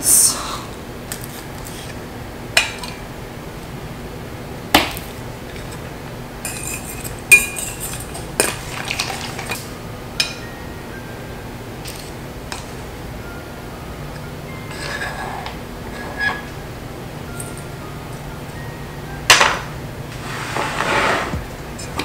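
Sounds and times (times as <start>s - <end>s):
metal utensils clinking on bowl: 6.4s - 10.4s.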